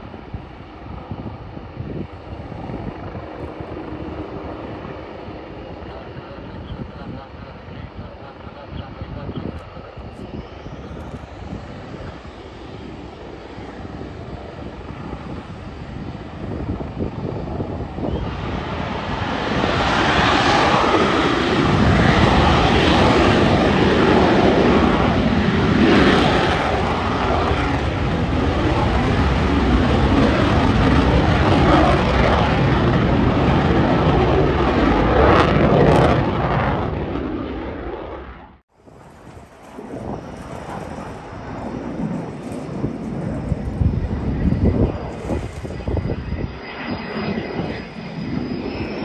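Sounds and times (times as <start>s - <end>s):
jet engine roar: 0.0s - 49.0s.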